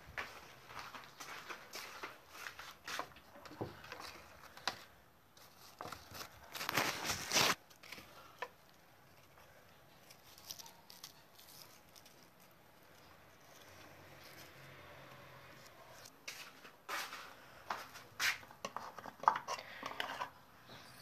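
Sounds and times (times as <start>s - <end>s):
handling rustles: 0.2s - 14.6s.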